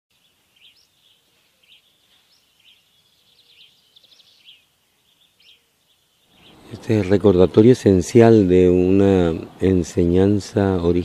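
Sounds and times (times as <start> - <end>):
faint bird chirps: 0.1 - 7.1
bird trill: 0.2 - 7.2.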